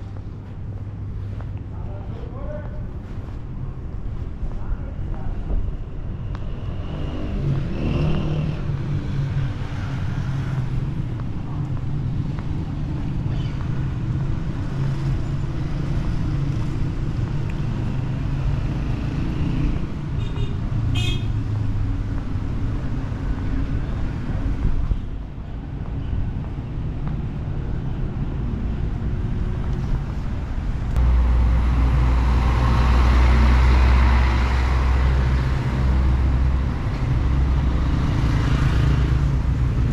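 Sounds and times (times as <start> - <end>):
traffic hum: 0.0 - 39.9.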